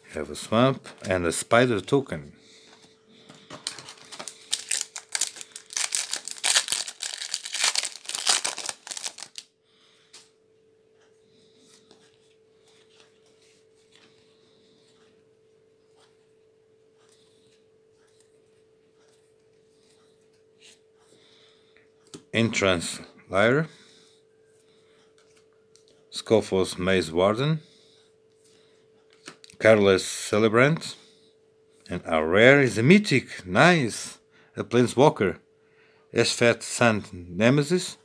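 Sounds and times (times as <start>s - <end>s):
faint steady hum: 0.0s - 38.0s
cards being handled: 3.3s - 9.4s
foil wrapper tearing and crinkling: 3.6s - 9.4s.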